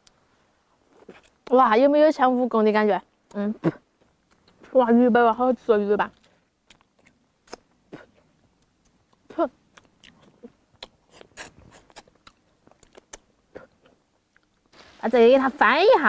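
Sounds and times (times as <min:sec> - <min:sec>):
chewing: 0:04.2 - 0:04.7, 0:06.1 - 0:14.7
mouth clicks and smacks: 0:06.1 - 0:14.7.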